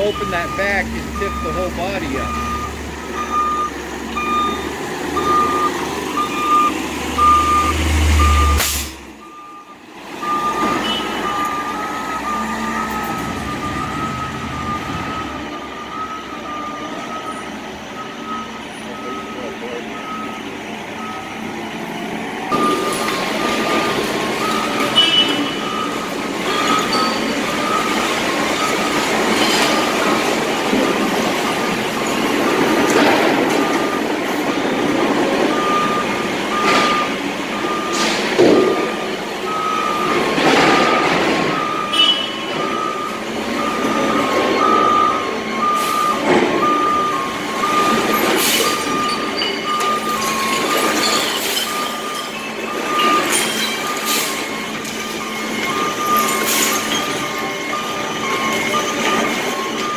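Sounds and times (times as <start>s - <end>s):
garbage truck and loader running: 0.0s - 59.9s
reversing alarms beeping: 0.0s - 59.9s
clanks and bangs: 32.1s - 35.6s, 40.1s - 42.7s.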